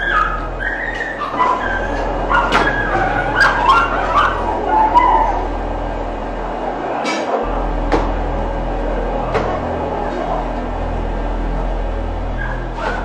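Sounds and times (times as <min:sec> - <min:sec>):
dogs whimpering and yelping: 0:00.0 - 0:05.5.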